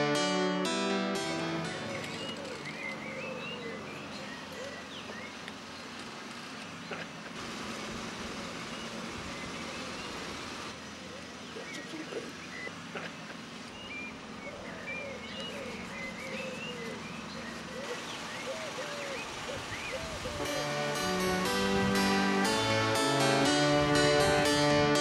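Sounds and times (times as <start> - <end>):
small birds chirping: 1.8 - 7.4, 8.3 - 20.5.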